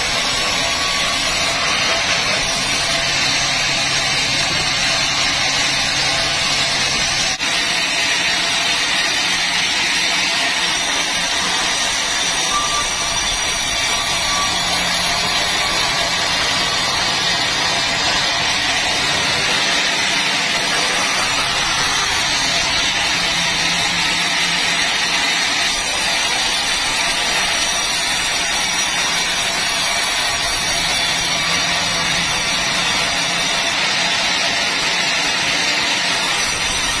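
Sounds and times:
saw cutting timber: 0:00.0 - 0:37.0.

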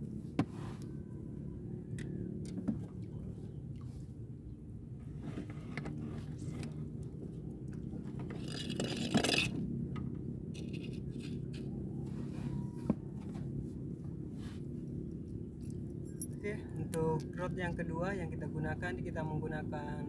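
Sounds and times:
steady low hum: 0:00.0 - 0:20.0
fishing tackle scraping and rustling: 0:05.0 - 0:09.8, 0:10.6 - 0:13.7.

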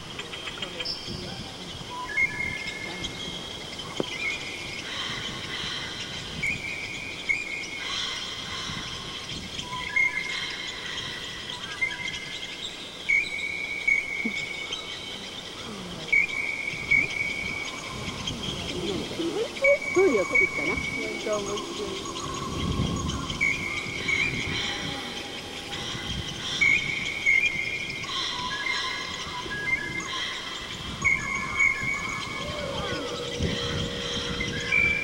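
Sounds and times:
high-pitched calls: 0:16.1 - 0:35.0.

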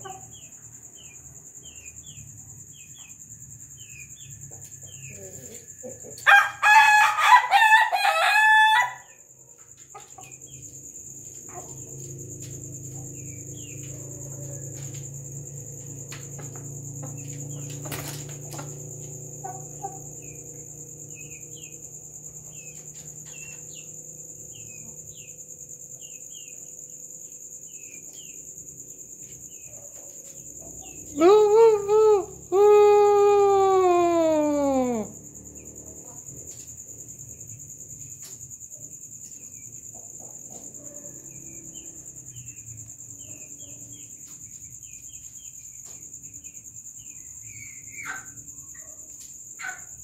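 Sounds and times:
rooster crowing: 0:06.1 - 0:09.2.

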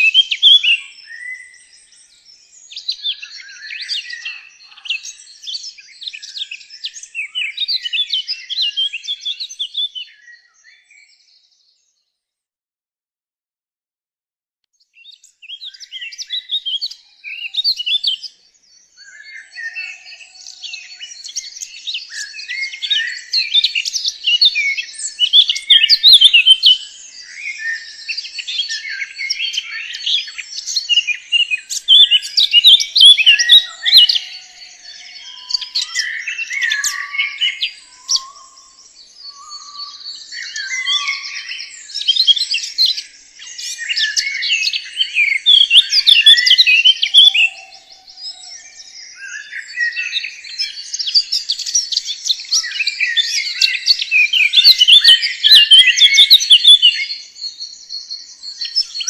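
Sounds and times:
birds chirping chorus: 0:00.0 - 0:12.1, 0:14.9 - 0:59.0
low whistled bird notes: 0:15.5 - 0:59.0.

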